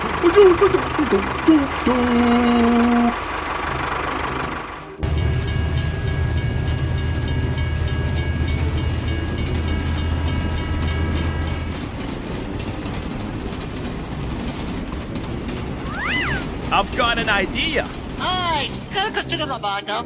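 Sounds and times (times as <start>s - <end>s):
wheels clacking over rail joints: 0.0s - 19.7s
train rumbling on rails: 0.0s - 20.0s.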